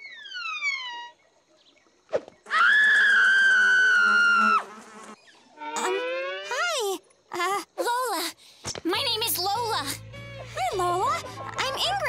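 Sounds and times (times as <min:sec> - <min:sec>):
flies buzzing: 0:02.2 - 0:07.0.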